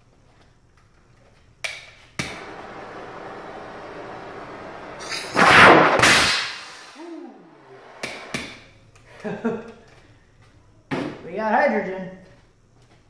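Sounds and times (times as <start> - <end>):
gas rushing into flame: 2.2 - 8.6
torch flame hissing: 2.2 - 8.6.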